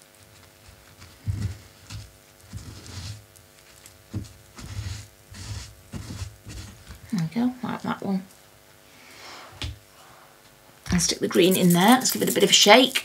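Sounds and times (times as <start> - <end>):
paper tissue rustling: 0.0 - 7.0, 11.3 - 13.0
faint hum: 0.0 - 13.0.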